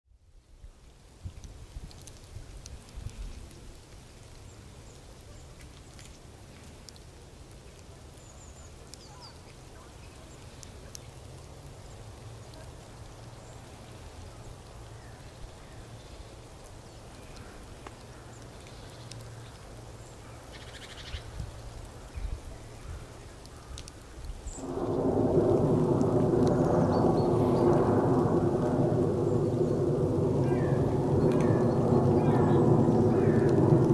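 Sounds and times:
low rumble: 24.6s - 33.9s
distant bird calls: 25.8s - 33.8s.

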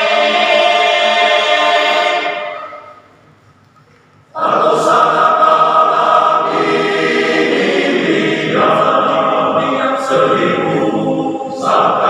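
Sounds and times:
men's choir singing in harmony: 0.0s - 2.9s, 4.3s - 12.0s.

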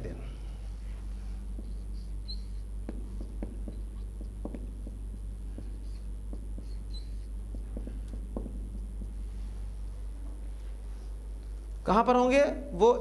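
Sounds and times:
steady low hum: 0.0s - 13.0s
marker pen writing on whiteboard: 1.0s - 10.4s
marker tip squeaks: 1.6s - 5.0s, 5.6s - 7.9s.

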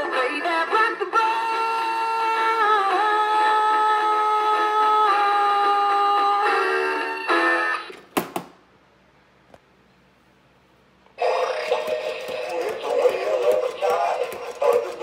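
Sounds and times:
electronic song from small speaker: 0.0s - 7.9s, 11.2s - 15.0s.

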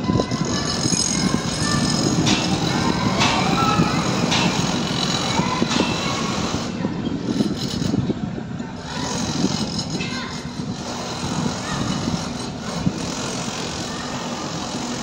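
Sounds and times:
rumble of passing vehicles: 0.0s - 15.0s
sharp knocks: 2.2s - 5.0s.

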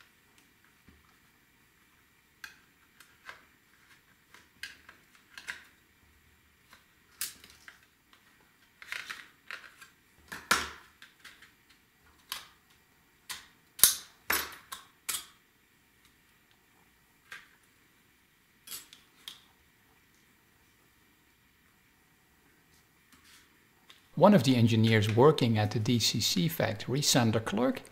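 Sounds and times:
small clicks and scrapes of plastic: 2.4s - 5.7s, 6.7s - 13.4s.

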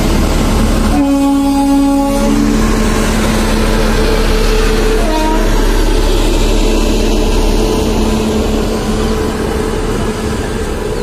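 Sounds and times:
locomotive hum: 0.0s - 11.0s
train wheels rumbling on rail: 0.0s - 11.0s
train horn toot: 0.9s - 2.8s, 4.5s - 5.9s.

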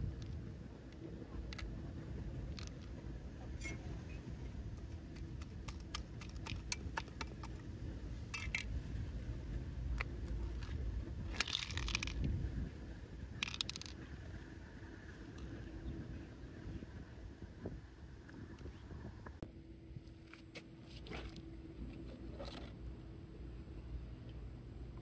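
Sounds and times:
low steady rumble: 0.0s - 25.0s.

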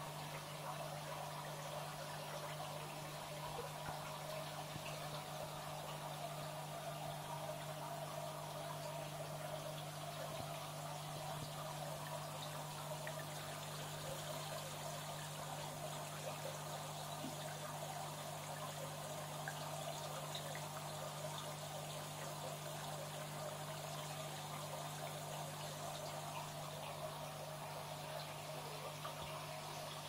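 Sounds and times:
water trickling into tank: 0.0s - 30.0s.

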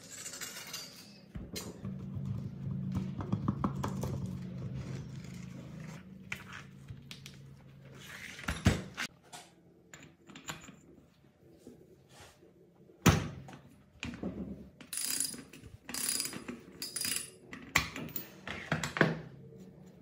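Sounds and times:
metal parts scraping and clinking: 0.0s - 1.7s, 14.9s - 17.4s.

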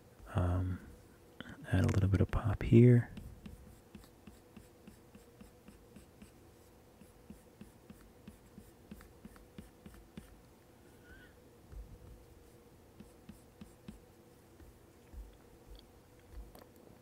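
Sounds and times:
faint steady hum: 0.0s - 17.0s
stylus tapping and scratching screen: 1.8s - 6.4s, 7.0s - 10.4s, 11.7s - 16.6s.

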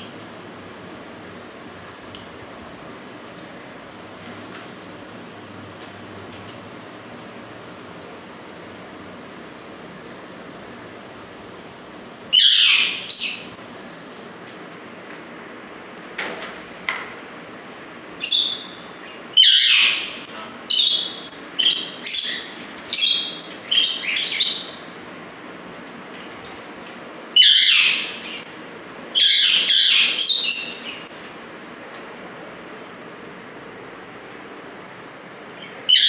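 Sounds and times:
parakeet screeching: 12.3s - 13.5s, 19.4s - 24.8s, 27.4s - 28.4s, 29.2s - 31.1s.

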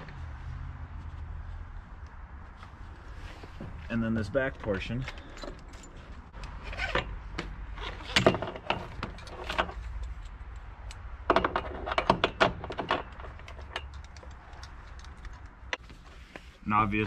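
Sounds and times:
ratchet buckle clicking and rattling: 9.1s - 11.1s, 13.0s - 15.8s.

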